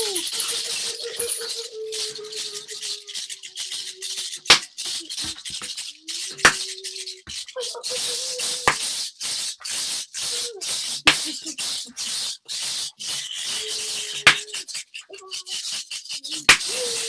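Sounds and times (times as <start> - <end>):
shakers rattling: 0.0 - 14.8
sharp clacks: 8.7 - 9.0.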